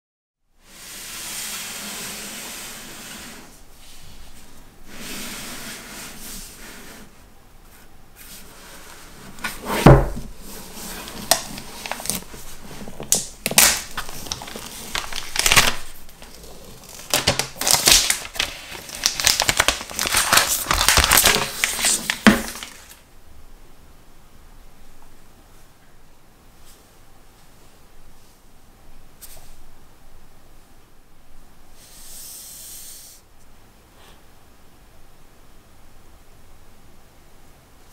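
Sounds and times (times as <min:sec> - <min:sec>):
plastic wrapping crinkling and tearing: 0:10.6 - 0:23.0.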